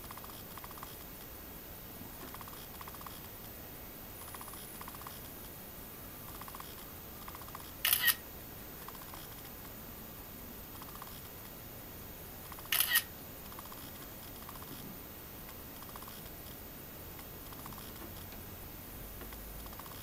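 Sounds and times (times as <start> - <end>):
light regular ticking: 0.0 - 1.4
faint steady hiss: 0.0 - 20.0
camera shutter clicks: 7.8 - 8.2, 12.6 - 13.1.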